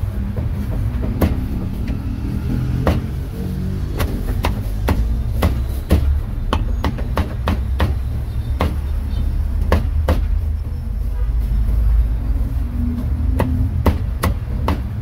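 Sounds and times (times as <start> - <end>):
cleaver chopping meat on wood: 0.6 - 1.4, 2.7 - 3.1, 3.9 - 8.9, 9.6 - 10.4, 13.4 - 15.0.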